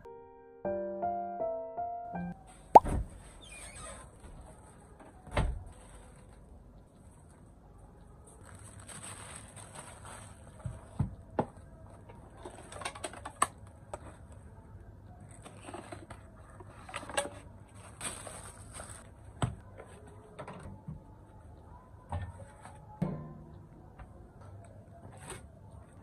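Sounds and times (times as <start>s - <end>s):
plastic bags rustling: 8.3s - 11.0s, 17.7s - 19.2s
clicks and knocks of handling: 10.7s - 14.3s.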